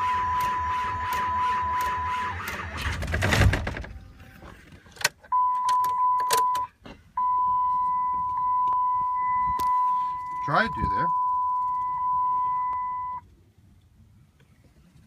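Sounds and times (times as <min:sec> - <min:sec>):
electronic warning tone: 0:00.0 - 0:02.6, 0:07.2 - 0:13.2.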